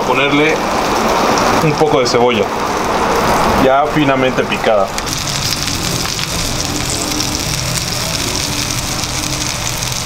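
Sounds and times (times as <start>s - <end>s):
onion sizzling in butter: 4.9s - 10.0s
steak searing on a griddle: 5.0s - 10.0s.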